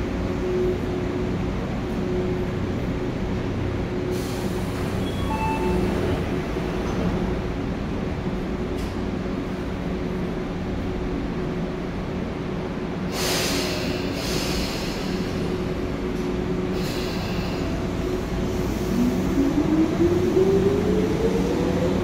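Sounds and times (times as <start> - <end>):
electric train running hum: 0.0 - 22.0
air hiss: 13.1 - 15.8, 16.7 - 19.0.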